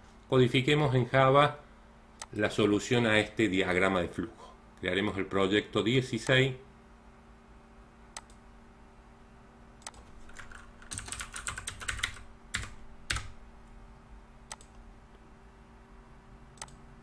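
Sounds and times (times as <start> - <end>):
keyboard typing: 9.8 - 13.4.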